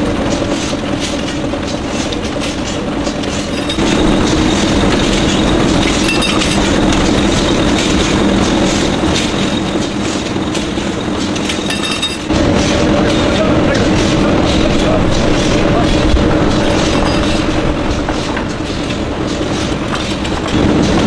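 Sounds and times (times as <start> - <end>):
machine clattering rhythmically: 0.0 - 21.0.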